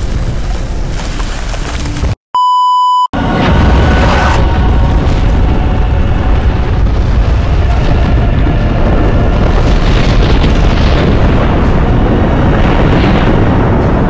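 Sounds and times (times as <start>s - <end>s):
deep rumble of explosions: 3.2s - 14.0s.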